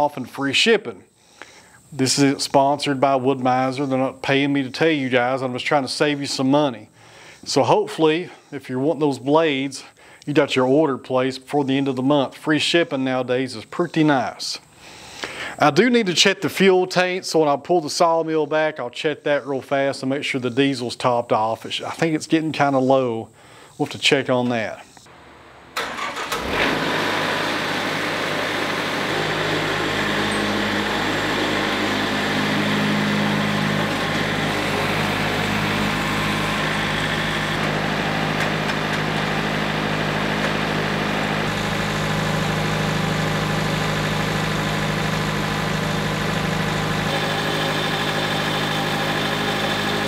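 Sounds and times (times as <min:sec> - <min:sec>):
diesel engine running: 0:25.1 - 0:50.0.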